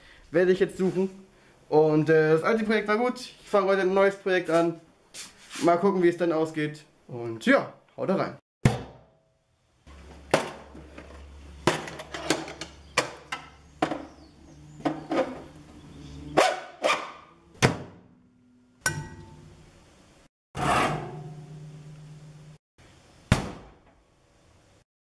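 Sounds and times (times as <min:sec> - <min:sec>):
objects knocking and clanking: 0:10.0 - 0:14.1.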